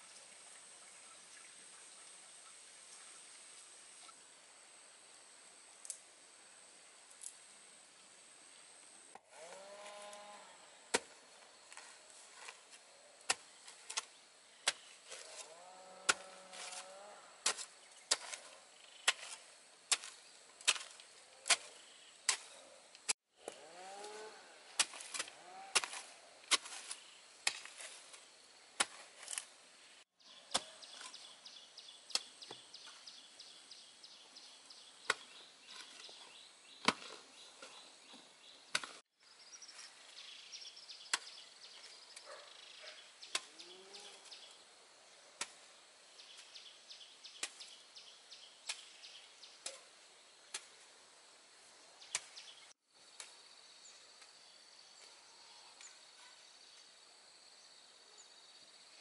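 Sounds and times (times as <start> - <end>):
insect buzzing: 9.3 - 10.7
hoe chopping into soil: 10.9 - 22.7, 23.4 - 29.5, 35.0 - 39.1, 41.0 - 42.3, 43.2 - 43.7, 47.3 - 47.8
birds chirping: 29.8 - 45.3.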